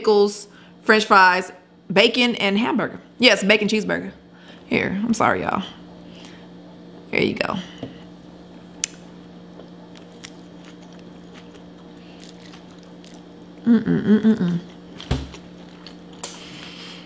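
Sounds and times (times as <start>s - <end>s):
low hum: 4.7s - 17.0s
closed-mouth humming mmm: 5.7s - 17.0s
wet chewing mouth clicks: 9.6s - 13.7s.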